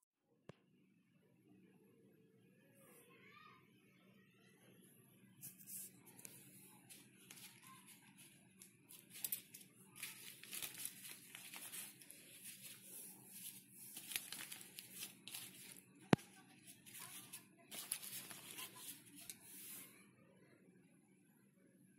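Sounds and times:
paper banknotes rustling: 6.8 - 19.9.

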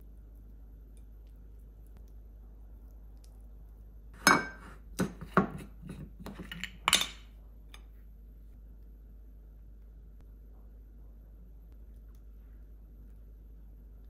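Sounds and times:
tableware clinking: 4.2 - 4.8, 6.4 - 7.2.

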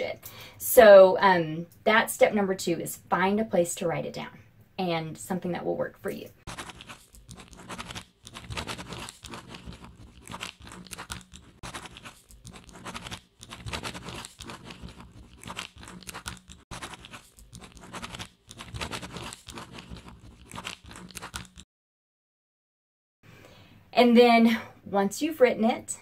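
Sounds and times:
pen scratching on paper: 6.5 - 21.6.

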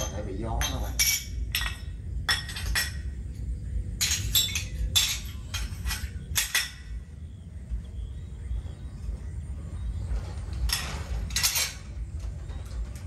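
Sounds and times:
sharp clinks of small hard objects: 0.0 - 7.0.

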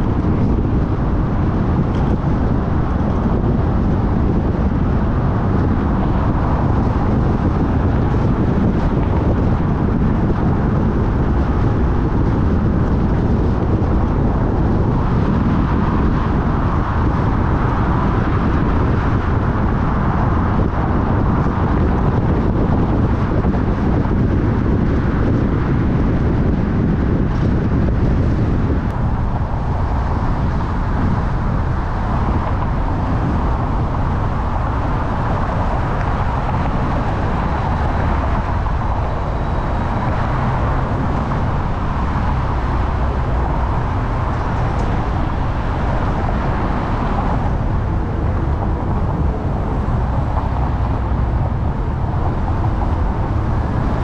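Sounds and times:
car road noise rumble: 0.0 - 54.0.

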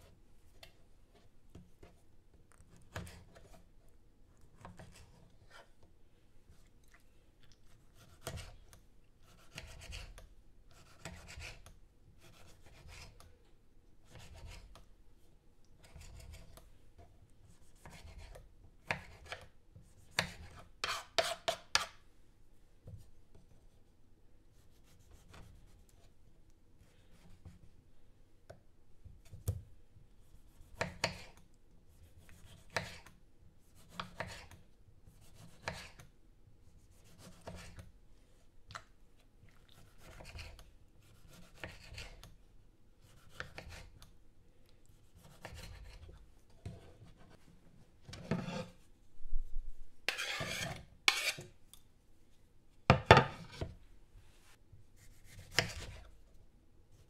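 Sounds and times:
knife cutting on wooden board: 20.1 - 21.9, 33.8 - 34.6, 35.3 - 36.0, 41.2 - 42.3, 43.1 - 43.9, 50.1 - 51.5, 55.1 - 56.1.

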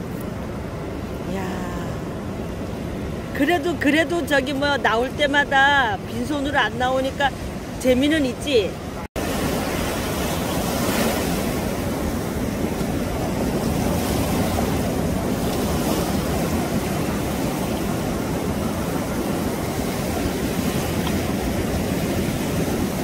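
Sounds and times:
surf breaking on beach: 9.2 - 23.0.

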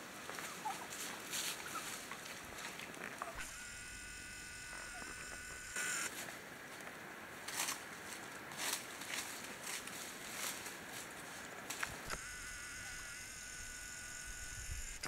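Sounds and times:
rustling in dry leaves: 0.0 - 3.5, 4.2 - 12.2
camcorder zoom motor whirring: 3.4 - 6.1, 12.0 - 15.0.

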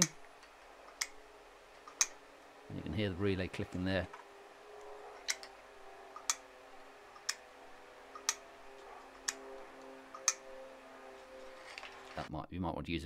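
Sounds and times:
relay clicking: 0.0 - 1.2, 4.8 - 6.5, 8.1 - 10.5.

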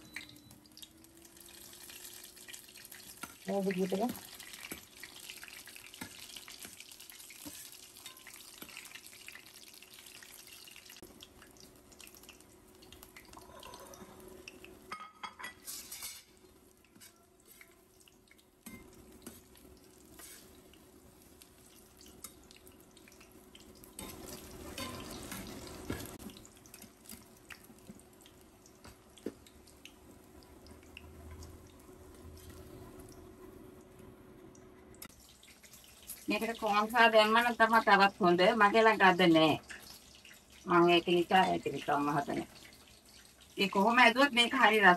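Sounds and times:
food sizzling in oil: 0.0 - 33.6, 35.0 - 44.9
metal spatula scraping a pan: 15.5 - 16.3, 20.2 - 20.6, 24.0 - 25.6.

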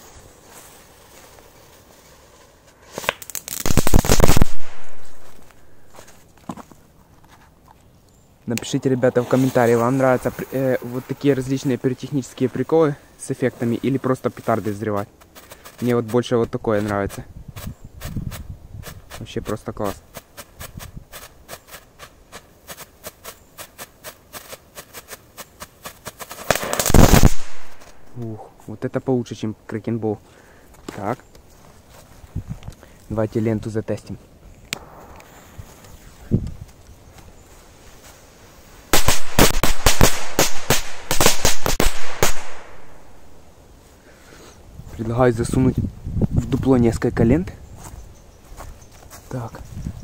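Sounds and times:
firework crackling and popping: 0.0 - 5.6, 9.1 - 12.6, 22.8 - 28.2, 34.7 - 36.8, 38.8 - 43.2
firecrackers banging: 2.9 - 5.4, 26.2 - 28.0, 38.9 - 42.9.

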